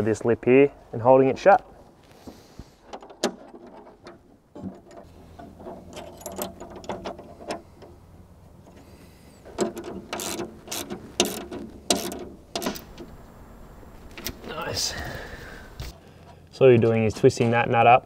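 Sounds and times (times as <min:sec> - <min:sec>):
hand ratchet clicking: 0:09.5 - 0:12.8.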